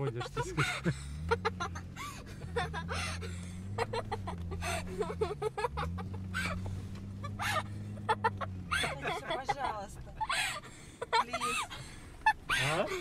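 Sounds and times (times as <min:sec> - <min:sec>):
car engine revving from inside cabin: 0:00.0 - 0:10.0.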